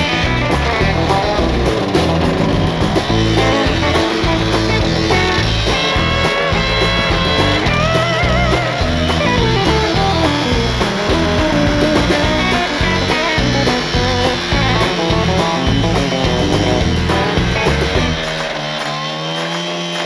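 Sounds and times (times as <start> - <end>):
rock music with electric guitar: 0.0 - 18.8
steady drum beat: 0.0 - 18.9.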